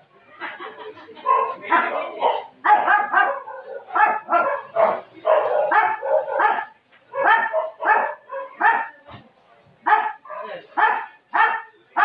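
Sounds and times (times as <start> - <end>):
dog barking: 1.2 - 9.0, 9.9 - 12.0.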